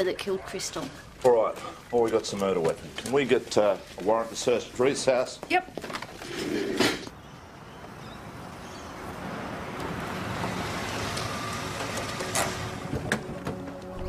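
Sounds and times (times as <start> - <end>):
rush of passing vehicles: 6.4 - 14.0.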